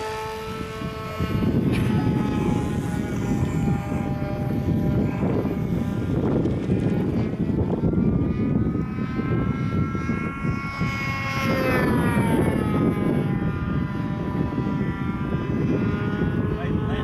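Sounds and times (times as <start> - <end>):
model plane motor whining: 0.0 - 17.0
steady low rumble: 0.0 - 17.0.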